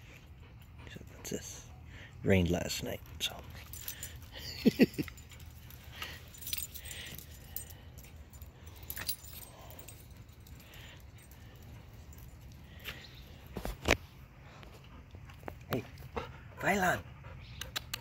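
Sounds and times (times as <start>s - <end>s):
dog tags jingling: 2.5s - 13.6s.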